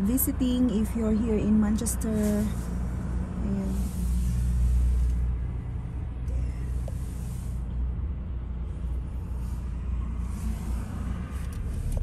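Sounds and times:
engine and road rumble: 0:00.0 - 0:12.0
tyre and traffic hiss: 0:00.9 - 0:05.6, 0:06.2 - 0:07.8, 0:08.8 - 0:12.0.

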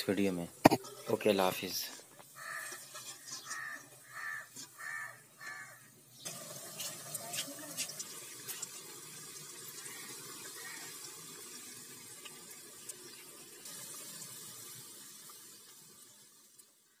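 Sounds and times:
deep-frying sizzle: 0:06.2 - 0:17.0.

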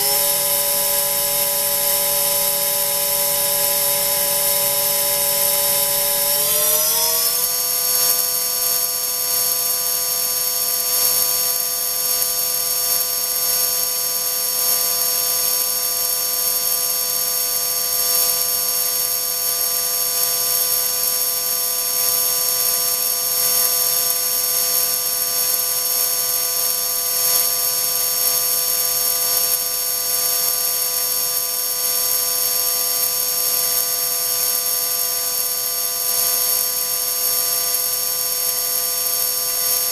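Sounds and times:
electric motor spindle whine: 0:00.0 - 0:07.6.

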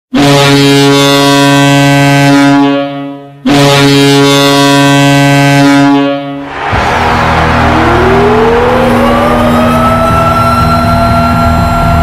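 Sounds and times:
goal horn blasts: 0:00.1 - 0:07.8.

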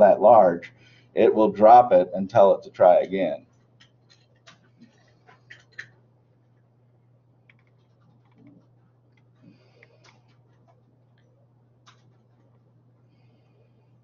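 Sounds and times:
steady low hum: 0:00.0 - 0:14.0
faint clicks and taps: 0:03.0 - 0:06.7, 0:07.4 - 0:12.7.

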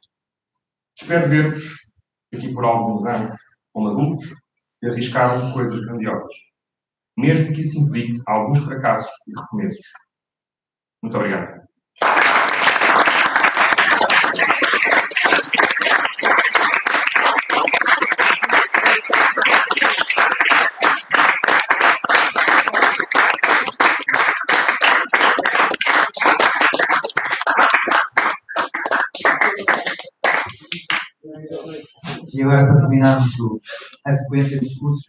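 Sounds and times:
audience applauding: 0:12.0 - 0:31.1.

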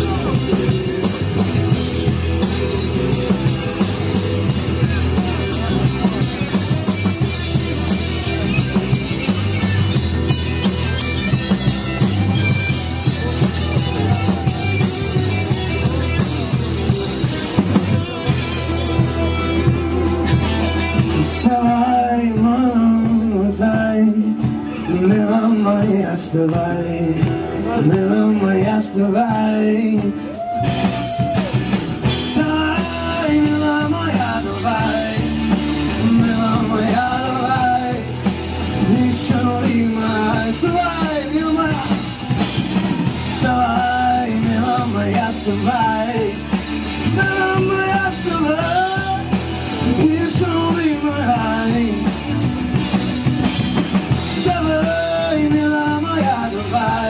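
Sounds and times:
rock band playing live: 0:00.0 - 0:57.0
person singing: 0:15.9 - 0:52.5, 0:54.1 - 0:57.0.

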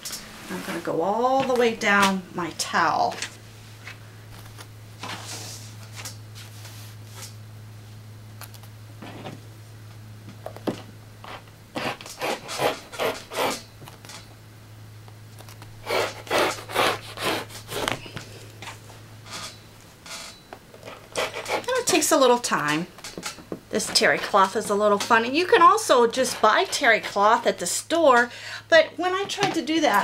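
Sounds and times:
low steady hum: 0:00.0 - 0:30.0
rotary cutter cutting towel: 0:11.8 - 0:13.7, 0:15.8 - 0:18.0, 0:20.8 - 0:22.0, 0:23.8 - 0:27.3.

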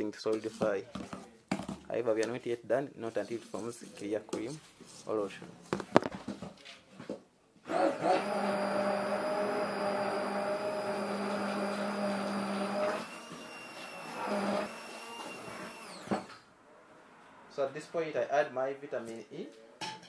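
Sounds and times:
immersion blender motor whine: 0:07.7 - 0:16.3.

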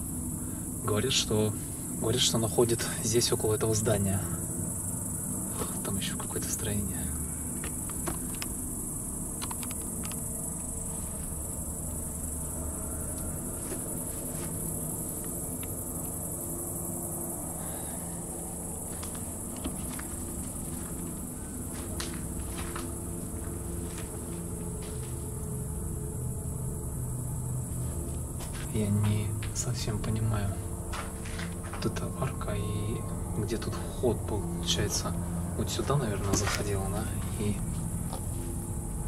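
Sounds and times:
crickets trilling: 0:00.0 - 0:39.0
footsteps through overgrowth: 0:13.5 - 0:15.5, 0:18.7 - 0:25.8, 0:27.6 - 0:29.7, 0:30.5 - 0:32.1, 0:36.1 - 0:38.7.

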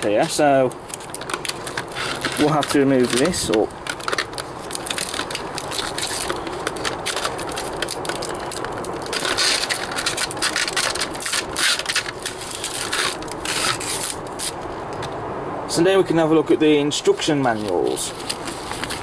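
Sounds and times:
plastic packaging crinkling: 0:00.0 - 0:14.6
sticky tape peeling: 0:00.0 - 0:15.0.

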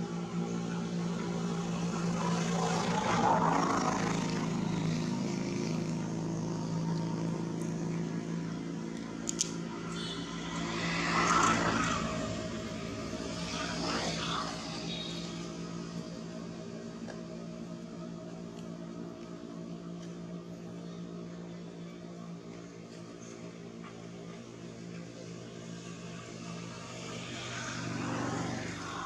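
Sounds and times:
vehicle passing: 0:00.0 - 0:17.9, 0:25.3 - 0:29.0
engine hum: 0:00.0 - 0:29.0.

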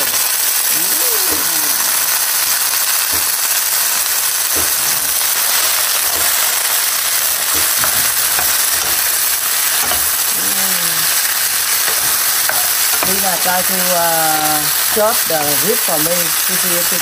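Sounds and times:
vegetables sizzling in a frying pan: 0:00.0 - 0:17.0
wooden spatula knocking on pan: 0:03.1 - 0:03.5, 0:04.4 - 0:10.4, 0:11.1 - 0:15.9.

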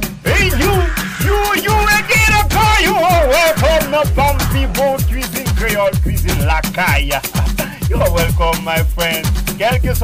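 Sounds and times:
deep bass drums: 0:00.1 - 0:08.9.

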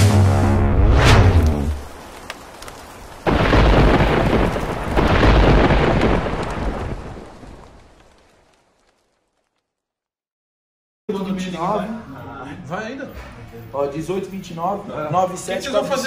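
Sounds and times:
thunderclap and rumble: 0:00.0 - 0:08.4
rain hissing: 0:00.9 - 0:09.0.

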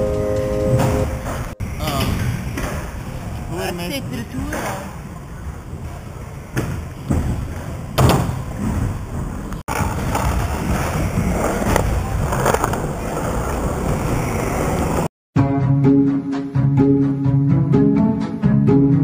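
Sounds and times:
skateboard wheels rolling on concrete: 0:00.0 - 0:15.1.

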